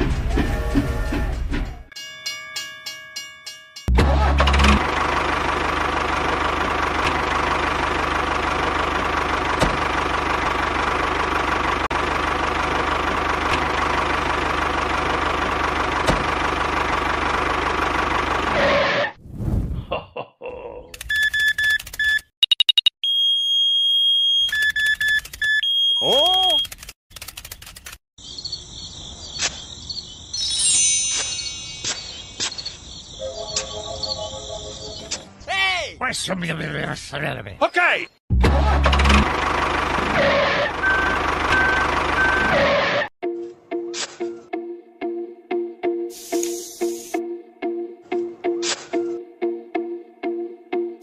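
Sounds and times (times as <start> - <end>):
tractor engine idling: 4.0 - 18.6, 38.5 - 42.6
sharp clicks: 24.5 - 28.0
high chirring: 30.3 - 35.1
cascade of chime notes: 30.4 - 32.4.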